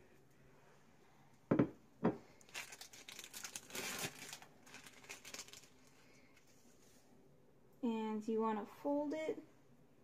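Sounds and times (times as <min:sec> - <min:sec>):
plastic wrapper crinkling and tearing: 0:02.4 - 0:06.7.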